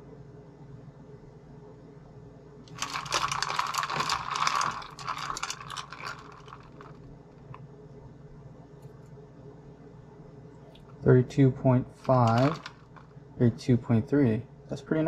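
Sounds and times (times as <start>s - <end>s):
ice cubes clinking in plastic cup: 2.7s - 7.6s, 12.0s - 13.1s.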